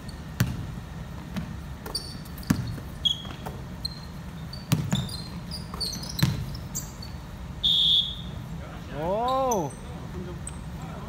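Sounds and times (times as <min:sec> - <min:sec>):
sneakers squeaking on court: 0:00.0 - 0:07.5
basketball bouncing on wooden floor: 0:00.3 - 0:06.8.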